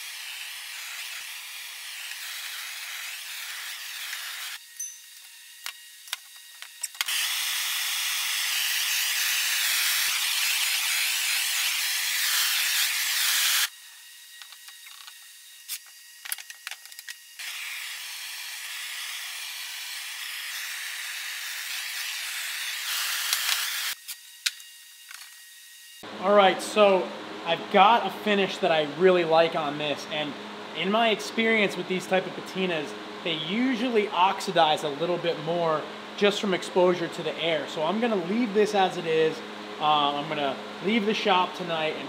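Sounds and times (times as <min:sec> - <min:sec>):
gas torch hissing: 0:00.0 - 0:06.2, 0:06.8 - 0:13.7.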